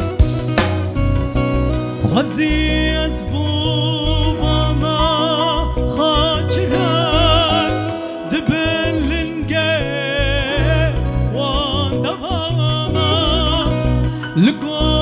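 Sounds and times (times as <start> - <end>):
keyboards and drums band: 0.0 - 3.5
man singing: 2.0 - 15.0.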